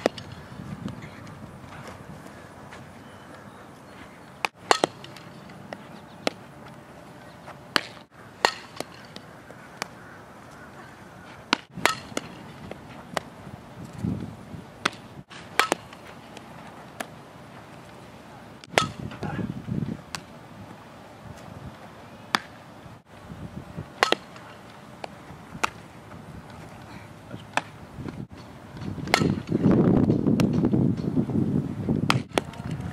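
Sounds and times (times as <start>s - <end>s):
ball hit by bat: 0.0s - 1.1s, 4.4s - 6.4s, 7.7s - 10.0s, 11.4s - 13.3s, 14.8s - 17.1s, 18.6s - 19.4s, 24.0s - 25.8s, 28.8s - 30.7s, 32.1s - 32.8s.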